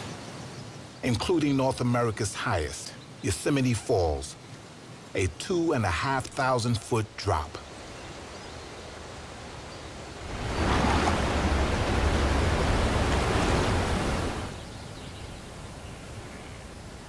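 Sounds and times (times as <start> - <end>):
waterfall roaring: 10.2 - 14.6.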